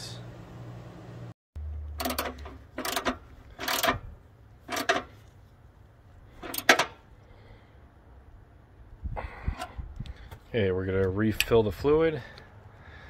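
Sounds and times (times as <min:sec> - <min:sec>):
socket ratchet clicking: 0:02.0 - 0:04.0.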